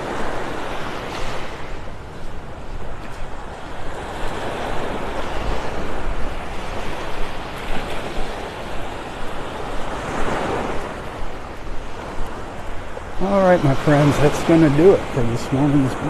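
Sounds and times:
small waves washing onto sand: 0:00.0 - 0:16.0.

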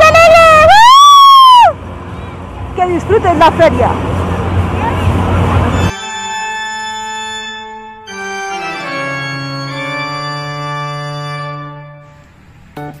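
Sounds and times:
electronic organ chords: 0:05.6 - 0:13.0.

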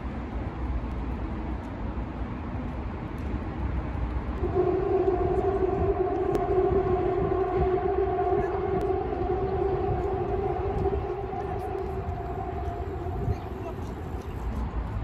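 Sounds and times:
distant city traffic rumble: 0:00.0 - 0:15.0
steady droning tone: 0:04.2 - 0:15.0.

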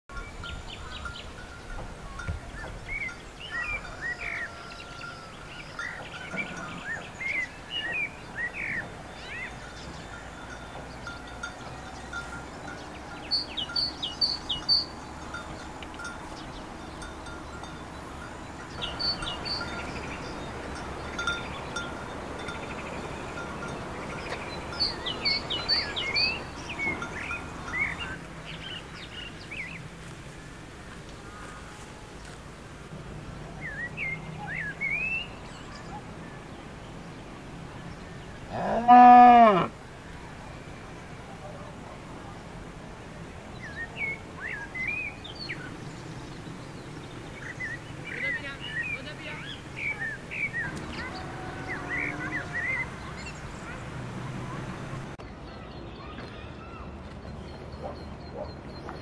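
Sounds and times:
wild birds chirping and singing: 0:00.1 - 0:59.0.

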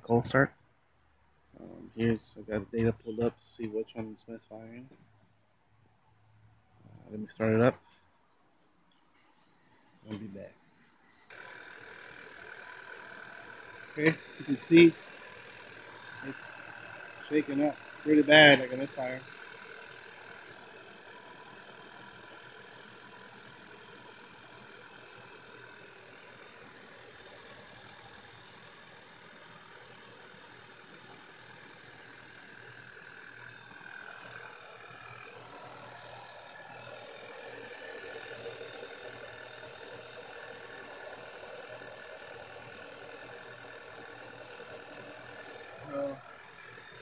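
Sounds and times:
loud high hiss: 0:11.3 - 0:21.8, 0:33.5 - 0:47.0.

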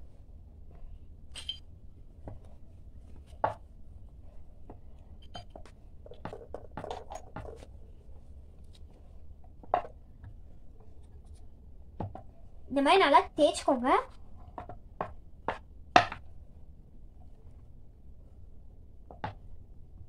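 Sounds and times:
wooden clicks and knocks: 0:05.4 - 0:07.7.

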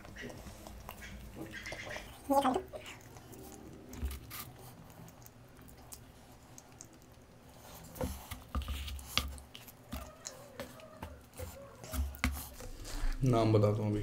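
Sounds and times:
wooden spoon in paper cup: 0:07.9 - 0:13.1.

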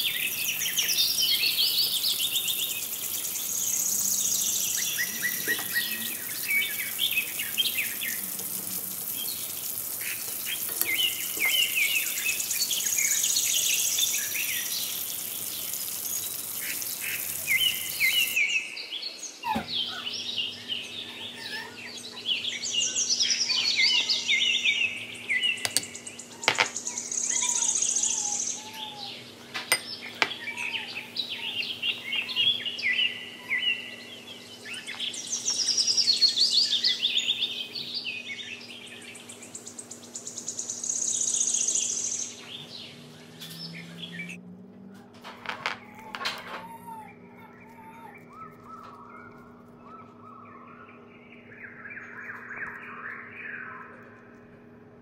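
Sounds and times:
food frying in hot oil: 0:00.0 - 0:18.4
birds chirping and singing: 0:00.0 - 0:44.4, 0:45.0 - 0:54.3.

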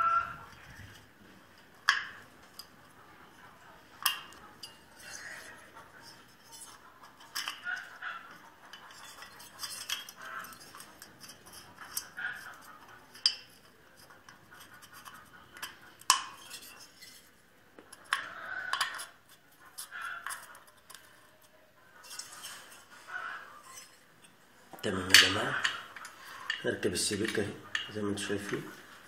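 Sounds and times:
metal tools clinking: 0:04.0 - 0:08.0, 0:08.7 - 0:13.7, 0:14.6 - 0:17.2, 0:24.8 - 0:28.6.

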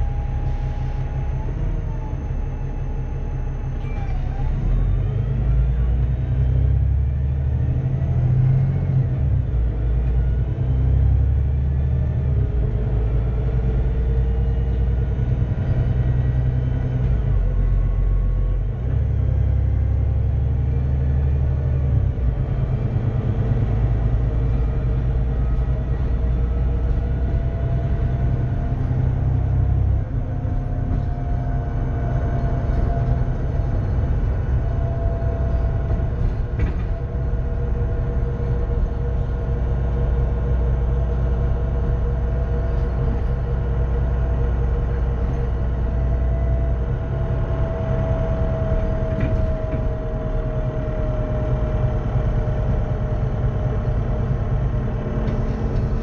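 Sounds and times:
bus diesel engine rumble: 0:00.0 - 0:56.0.

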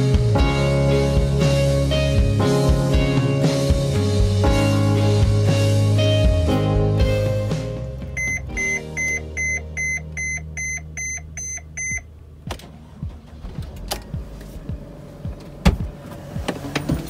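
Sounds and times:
dashboard warning chime beeping: 0:08.2 - 0:12.1.

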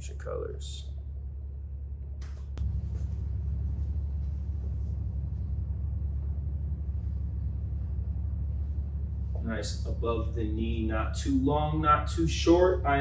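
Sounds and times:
low background rumble: 0:00.0 - 0:13.0
faint rustles: 0:02.3 - 0:09.6.

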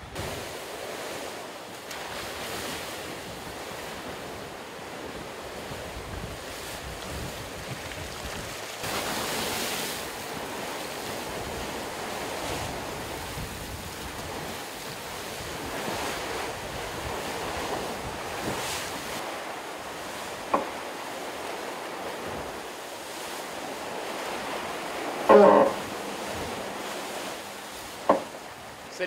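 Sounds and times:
waves hissing along hull: 0:00.0 - 0:29.0
wind buffeting microphone: 0:02.0 - 0:28.9
sharp knock: 0:28.0 - 0:28.4.

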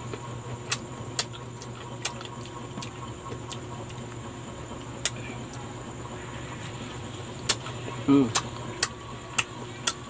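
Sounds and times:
person chewing wetly: 0:00.0 - 0:04.3, 0:05.0 - 0:05.6, 0:07.4 - 0:10.0.

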